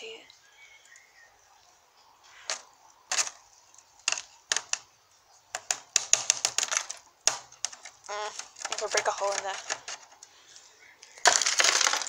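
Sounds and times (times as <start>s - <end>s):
broken glass clicking and tinkling: 11.2s - 12.0s.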